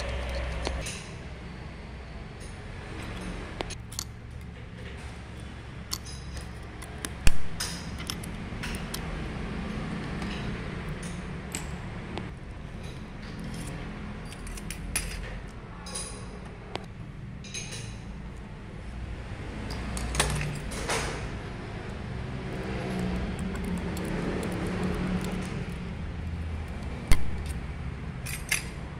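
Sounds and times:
metal tools clinking and scraping: 0.0s - 1.3s, 2.3s - 9.1s, 9.7s - 11.9s, 12.7s - 16.5s, 17.4s - 18.2s, 19.6s - 21.3s, 28.2s - 28.9s.

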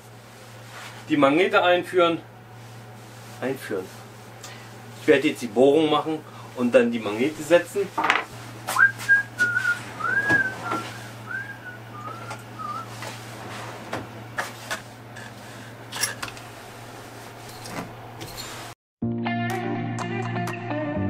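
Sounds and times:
steady low hum: 0.0s - 18.7s
person whistling a tune: 8.7s - 12.9s.

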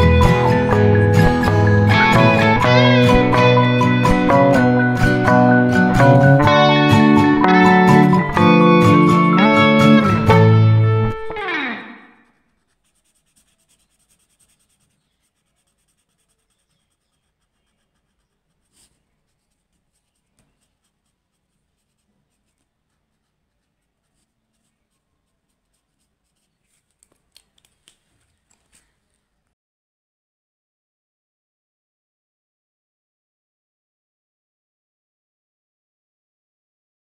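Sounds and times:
marker scratching on paper: 12.1s - 29.0s.

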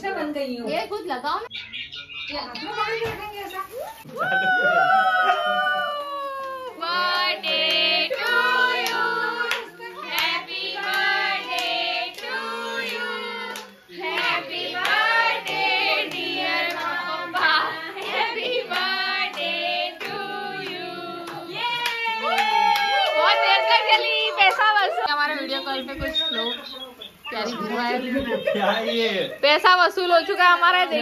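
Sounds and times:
people singing together: 6.7s - 22.4s
hand clapping: 21.3s - 23.2s.

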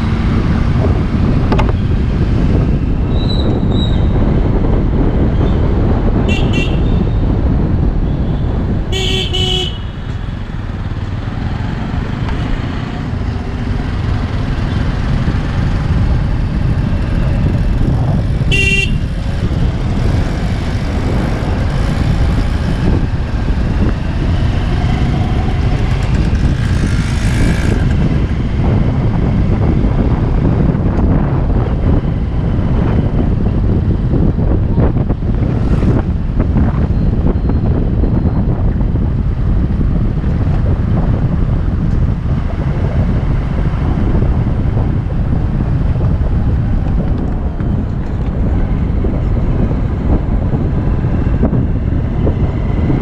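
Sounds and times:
low traffic rumble: 0.0s - 53.0s
wind on microphone: 0.0s - 53.0s
vehicle horn toot: 6.3s - 7.0s, 8.9s - 10.0s, 18.5s - 19.1s.

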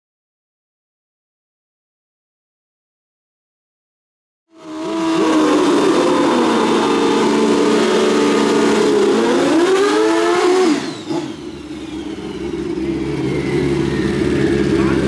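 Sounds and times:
motorcycle engine revving: 4.5s - 15.0s
motorcycle engine idling: 11.1s - 15.0s.

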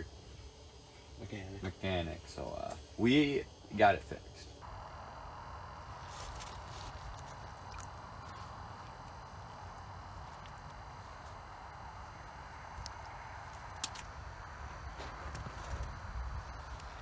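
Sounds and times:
wind rumble on microphone: 5.1s - 17.0s.

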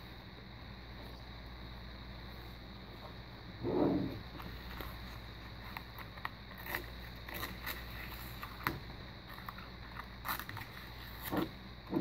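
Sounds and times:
steady low hum: 0.0s - 12.0s
tape crinkling: 4.3s - 11.6s.

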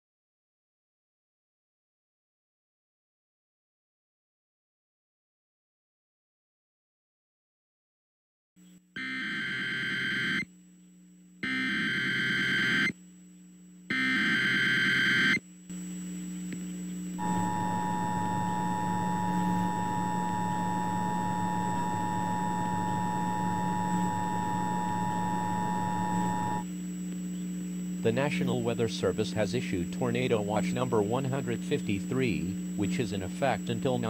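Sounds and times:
static hiss and hum: 8.6s - 34.0s
buzzy digital data bursts: 11.4s - 13.0s, 13.9s - 15.4s, 17.2s - 26.7s
two-tone attention signal: 17.2s - 26.6s.

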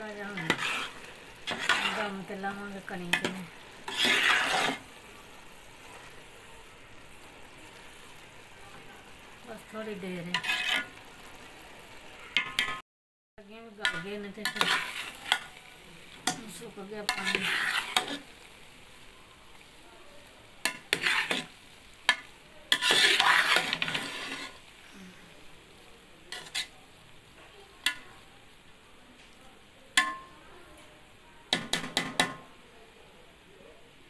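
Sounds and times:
spoon scraping rice in metal pot: 0.3s - 4.9s, 10.3s - 10.9s, 13.9s - 15.5s, 17.0s - 18.3s, 20.7s - 24.6s, 26.3s - 26.8s.

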